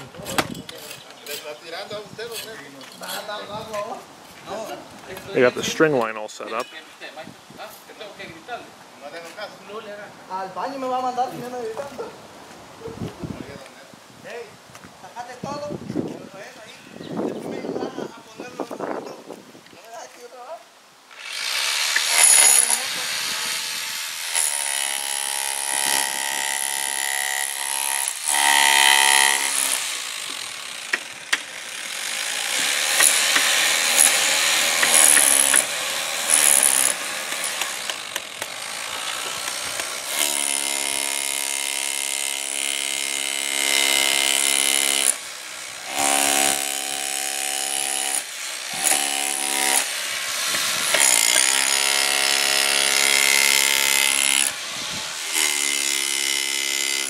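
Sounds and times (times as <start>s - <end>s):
rough masonry tool noise: 0.0s - 6.8s, 21.2s - 57.0s
chipping hammer on concrete: 21.9s - 23.0s, 24.3s - 45.2s, 45.9s - 54.6s, 55.2s - 57.0s.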